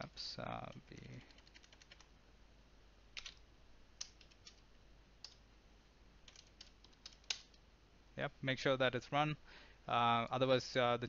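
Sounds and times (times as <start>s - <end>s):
faint keyboard keystrokes: 3.2s - 3.4s, 4.0s - 4.6s, 6.3s - 7.6s.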